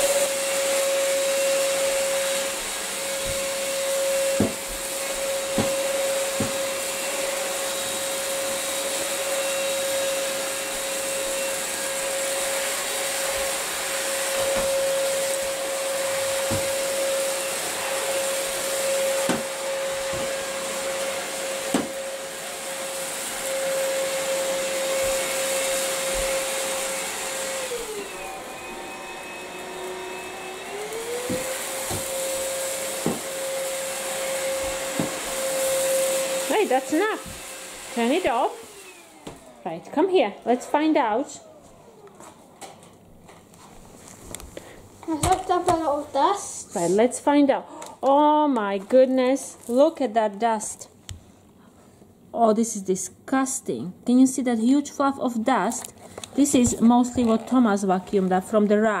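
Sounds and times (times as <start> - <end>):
vacuum cleaner motor whine: 0.0 - 42.8.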